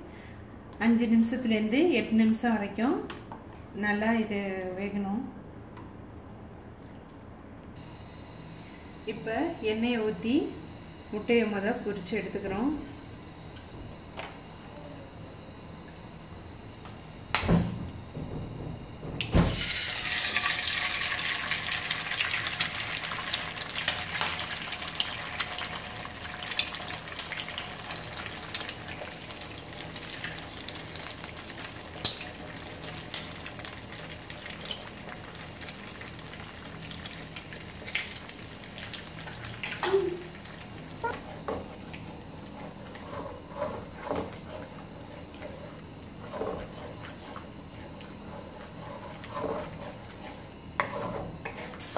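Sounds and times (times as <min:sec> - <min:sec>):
egg sizzling in hot oil: 0:19.5 - 0:40.9
wooden spatula scraping pan: 0:42.5 - 0:51.9.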